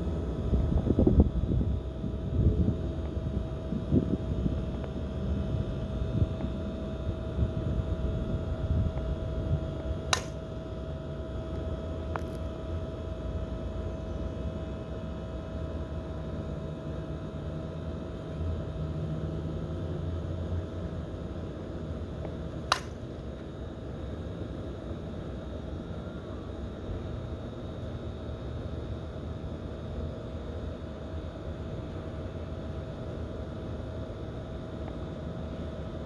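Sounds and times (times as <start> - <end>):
wind rumble on microphone: 0.0 - 10.1
bat cracking a softball: 10.1 - 10.4, 22.6 - 23.1.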